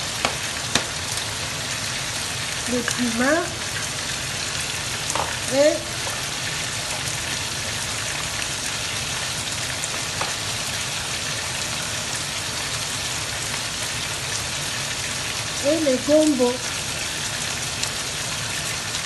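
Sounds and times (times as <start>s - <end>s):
pan sizzling hiss: 0.0s - 19.0s
small pops: 0.2s - 1.0s.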